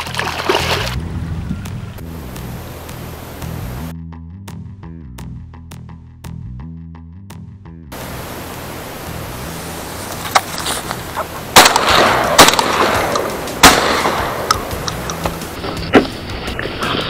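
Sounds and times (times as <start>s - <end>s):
wind on microphone: 0.8s - 3.9s.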